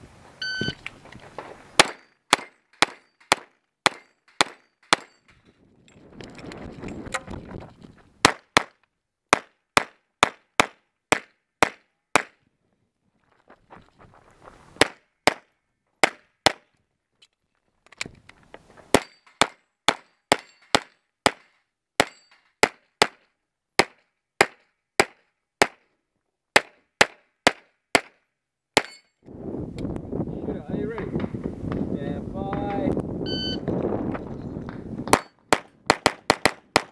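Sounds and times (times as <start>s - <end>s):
pistol shots: 1.8s - 5.2s.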